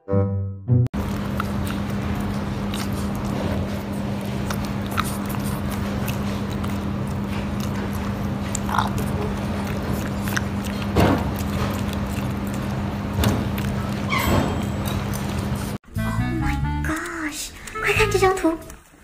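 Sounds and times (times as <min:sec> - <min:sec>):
dog chewing mouth clicks: 0:01.0 - 0:14.1.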